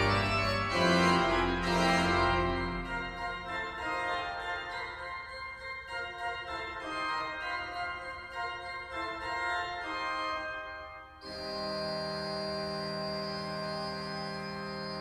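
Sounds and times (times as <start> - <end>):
pipe organ playing chords: 0.0 - 15.0.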